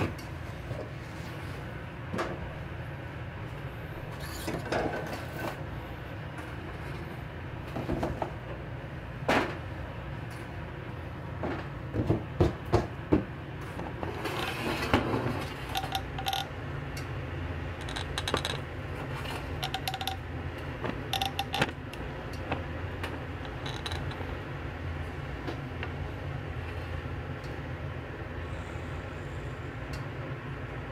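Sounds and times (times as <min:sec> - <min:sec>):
steady low hum: 0:00.0 - 0:30.9
metal pots and utensils clinking: 0:19.6 - 0:20.3.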